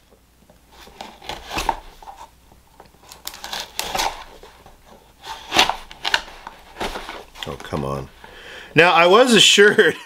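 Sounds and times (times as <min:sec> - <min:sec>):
cardboard and packaging rustling: 0:00.7 - 0:09.3.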